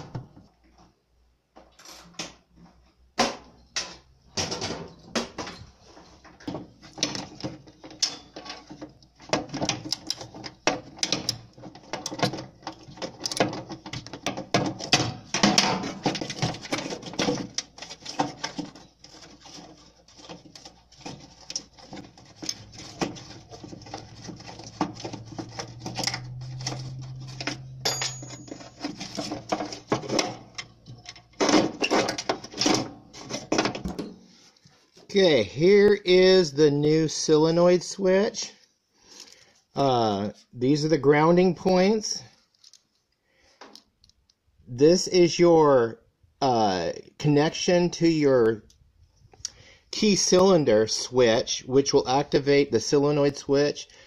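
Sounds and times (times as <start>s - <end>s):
handling clatter: 4.5s - 34.9s
metal tools knocking: 20.2s - 32.8s.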